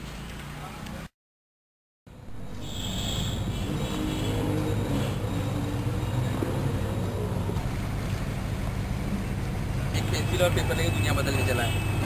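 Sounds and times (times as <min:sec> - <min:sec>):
low outdoor rumble: 0:05.3 - 0:10.0.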